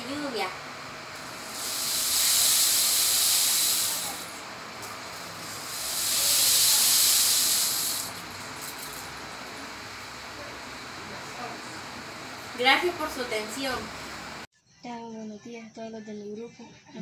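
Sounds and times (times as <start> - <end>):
rain stick rushing hiss: 0.9 - 11.0.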